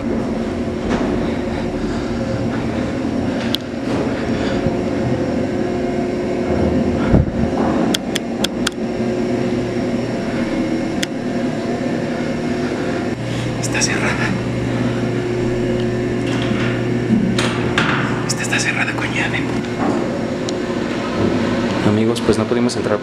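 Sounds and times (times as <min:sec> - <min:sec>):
footsteps on stairs: 0:00.0 - 0:05.3
mechanical hum: 0:00.0 - 0:23.0.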